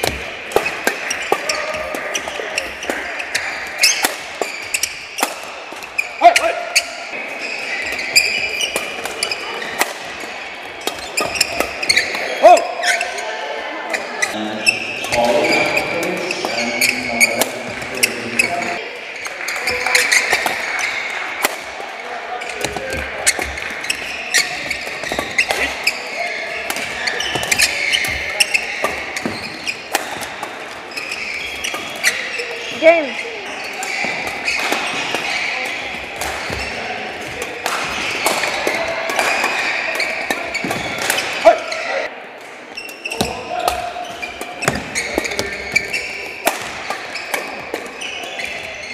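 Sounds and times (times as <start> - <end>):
racket hitting shuttlecock: 0.0 - 6.0, 7.6 - 13.0, 19.4 - 21.8, 22.5 - 32.6, 33.7 - 41.5, 42.4 - 48.9
shoes squeaking on floor: 0.0 - 21.1, 22.3 - 42.1, 42.7 - 48.9
racket striking shuttlecock: 2.8 - 5.9, 7.9 - 12.3, 26.6 - 30.7, 42.8 - 48.5.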